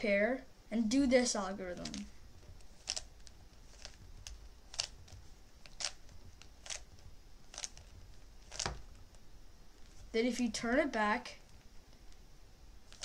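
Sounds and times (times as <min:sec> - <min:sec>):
plastic cube layers clicking: 0:01.8 - 0:09.1.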